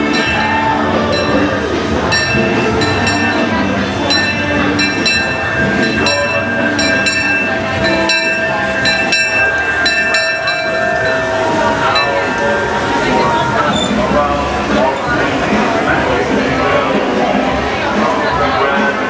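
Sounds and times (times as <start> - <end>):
metallic dings: 0.0 - 14.0
train low rumble: 0.0 - 19.0
high squeal: 4.2 - 15.2.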